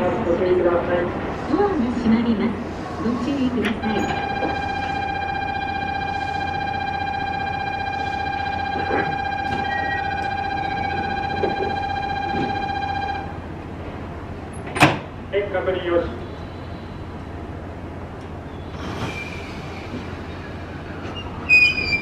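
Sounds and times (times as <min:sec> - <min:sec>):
electronic departure bell tone: 0:03.8 - 0:13.4.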